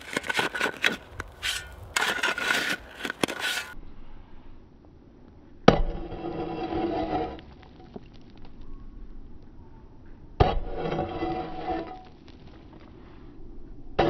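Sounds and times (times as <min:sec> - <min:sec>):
pickaxe digging stony soil: 0:00.0 - 0:03.8, 0:10.4 - 0:12.5.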